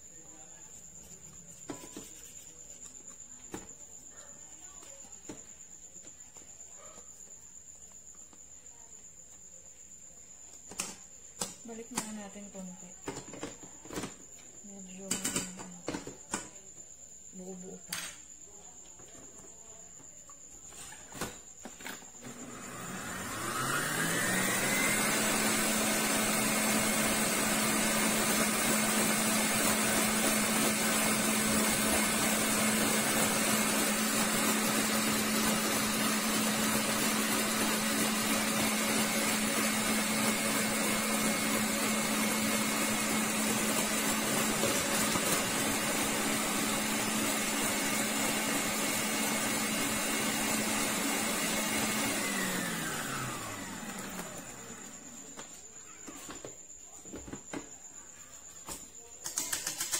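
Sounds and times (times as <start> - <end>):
stand mixer motor whining: 22.2 - 55.1.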